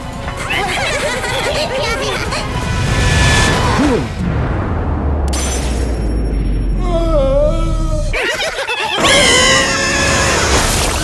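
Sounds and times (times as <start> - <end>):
sharp noisy hit: 2.6 - 6.8
cartoon deep boom and rumble: 2.6 - 8.2.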